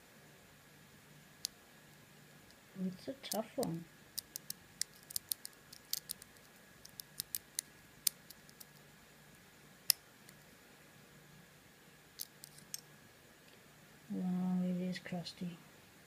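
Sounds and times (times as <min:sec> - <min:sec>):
metallic clicks of lock picking: 0:12.2 - 0:12.8.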